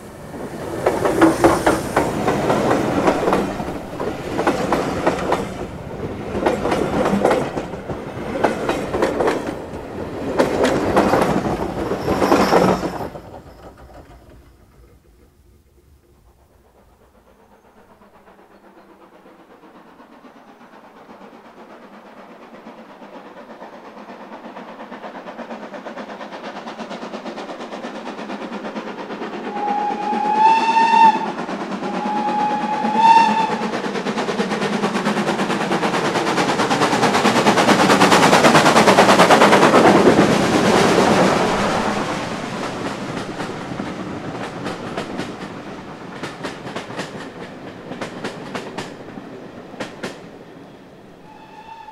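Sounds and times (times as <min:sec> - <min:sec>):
steam train passing: 0:00.0 - 0:51.9
train whistle blasts: 0:29.5 - 0:33.7, 0:51.2 - 0:51.9.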